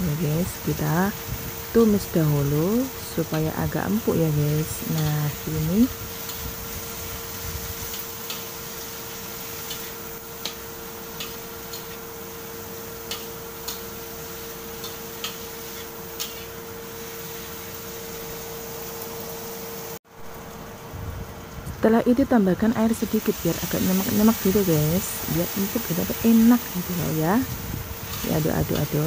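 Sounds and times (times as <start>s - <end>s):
vegetables frying hiss: 0.0s - 29.0s
spatula scraping a wok: 13.0s - 17.7s.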